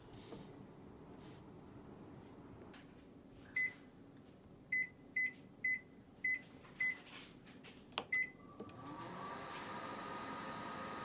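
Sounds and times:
microwave keypad beeps: 3.5 - 3.8, 4.7 - 7.0, 8.1 - 8.4
microwave oven humming: 8.2 - 11.0.

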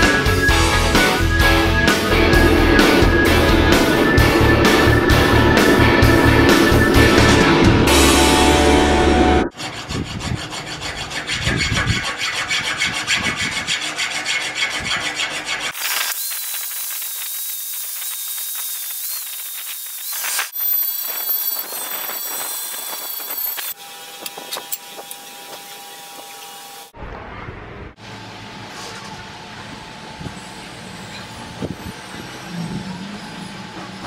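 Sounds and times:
steel file rasping on rail: 9.5 - 15.8
hissing scrape with high whine: 15.7 - 23.8.

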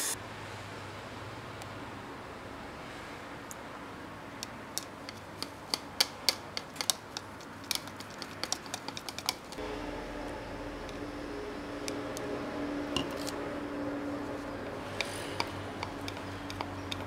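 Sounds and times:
whisk clicking against plastic jug: 4.8 - 9.6
steady low hum: 9.6 - 17.0.

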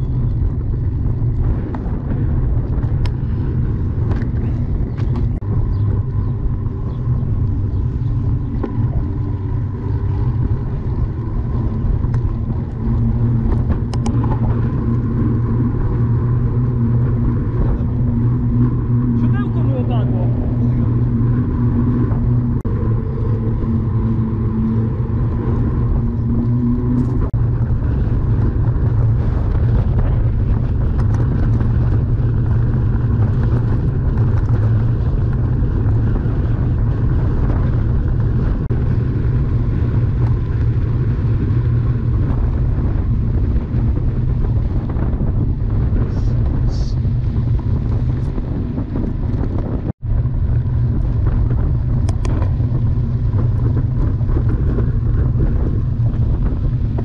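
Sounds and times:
low rumble of travel noise: 0.0 - 57.0
pitched hum: 0.0 - 57.0
wind buffeting microphone: 0.0 - 57.0.

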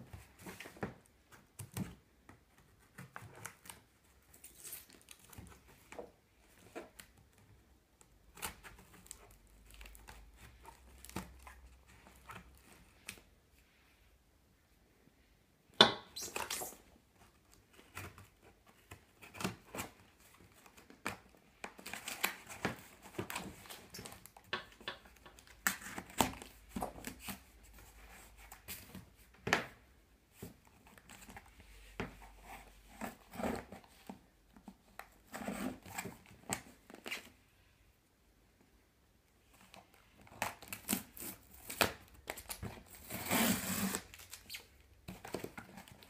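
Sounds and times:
cardboard and tape crinkling: 39.5 - 46.0.

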